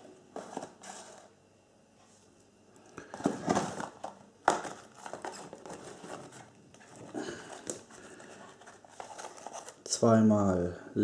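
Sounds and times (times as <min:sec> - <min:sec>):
cardboard packages rustling: 0:00.3 - 0:01.3, 0:03.0 - 0:10.2.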